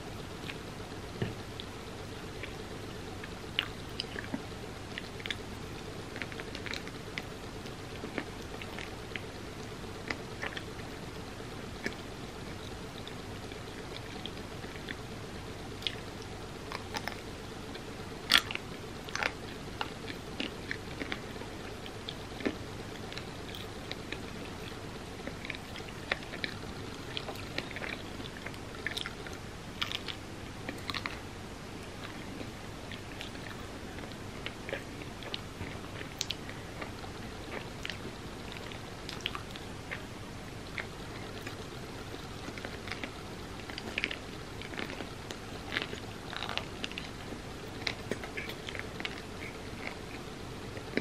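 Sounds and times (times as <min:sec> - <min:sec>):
person chewing: 0:15.8 - 0:31.2, 0:31.9 - 0:51.0.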